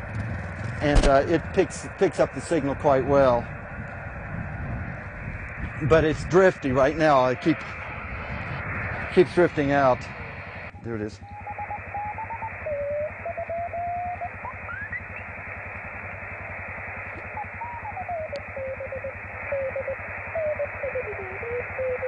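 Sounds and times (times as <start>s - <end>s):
radio receiver hiss: 0.5s - 22.0s
rising whistle: 10.7s - 15.3s, 17.3s - 22.0s
morse code tone: 10.8s - 15.3s, 17.2s - 22.0s.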